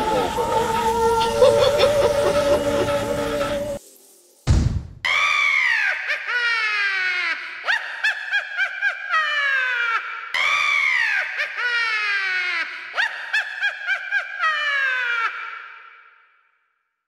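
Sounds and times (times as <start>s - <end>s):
high-pitched cackling laugh: 0.0s - 3.3s, 5.7s - 15.8s.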